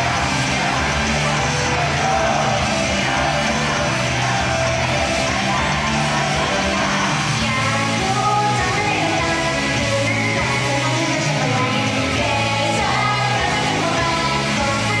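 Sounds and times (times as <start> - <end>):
live rock pop song: 0.0 - 15.0
person singing: 0.0 - 15.0.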